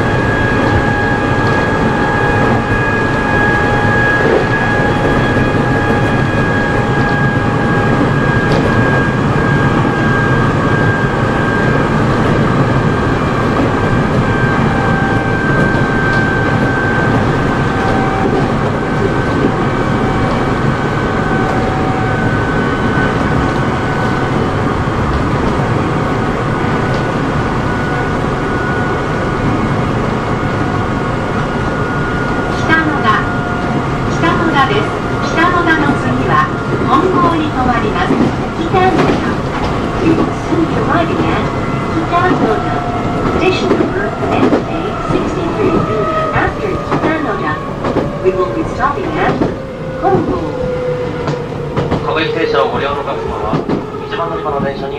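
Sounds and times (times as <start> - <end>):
wheels rumbling on rail: 0.0 - 54.9.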